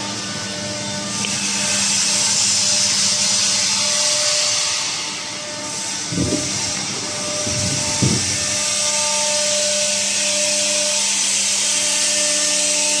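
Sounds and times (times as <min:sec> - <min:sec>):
cooling fans hissing: 0:00.0 - 0:13.0
short low thump: 0:06.1 - 0:08.8.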